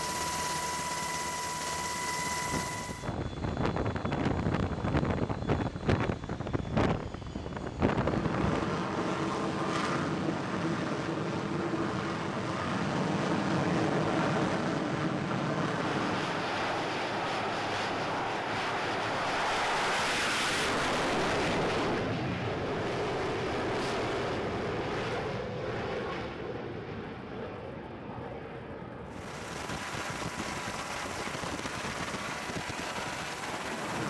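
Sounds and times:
jet engine roar: 0.0 - 34.0.

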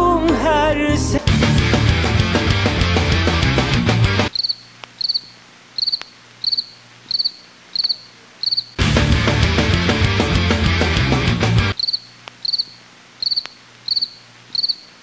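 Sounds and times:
loud music: 0.0 - 4.3, 8.8 - 11.8
cricket chirping: 4.3 - 8.8, 11.8 - 15.0.

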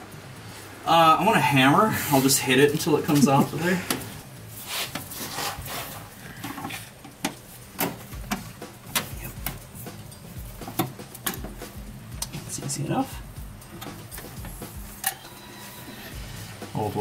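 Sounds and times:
sharp metallic clicks and knocks: 6.4 - 12.6.

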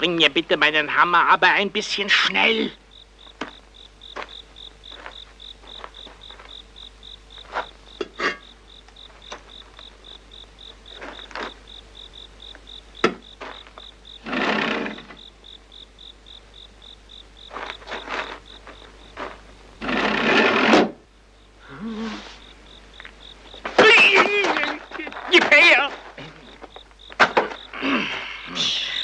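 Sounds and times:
crickets chirping: 0.0 - 29.0
sharp knocks and clicks: 13.0 - 13.3.

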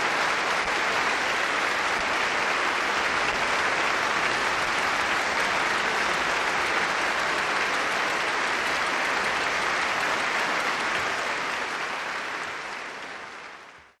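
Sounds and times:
audience applauding: 0.0 - 14.0.

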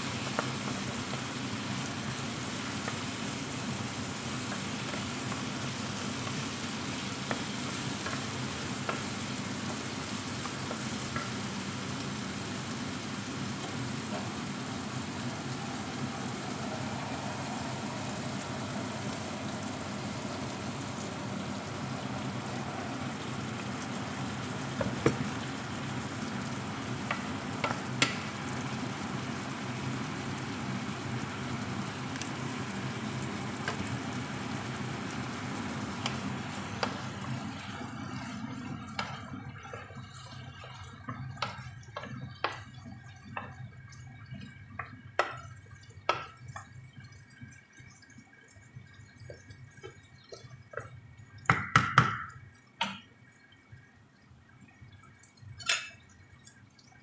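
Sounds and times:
food sizzling in a frying pan: 0.0 - 53.8, 54.6 - 56.8
wooden spoon stirring: 35.2 - 47.5.

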